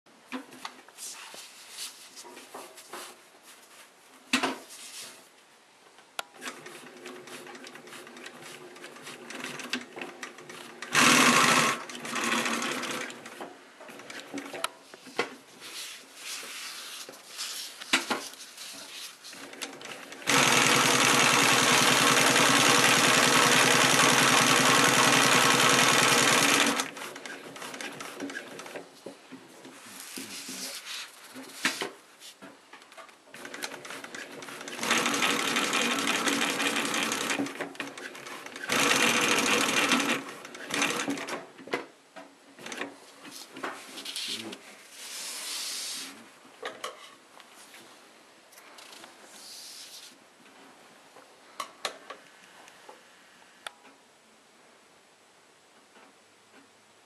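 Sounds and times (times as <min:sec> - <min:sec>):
sewing machine stitching: 0:06.4 - 0:14.6, 0:19.3 - 0:28.8, 0:33.3 - 0:41.5.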